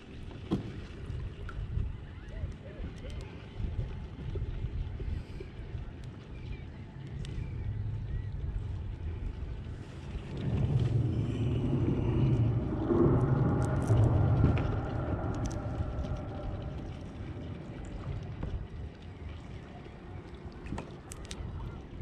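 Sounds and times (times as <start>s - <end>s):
faint clicks: 2.5s - 3.4s, 9.9s - 19.6s, 20.2s - 21.9s
passing vehicle motor rumble: 9.6s - 18.7s.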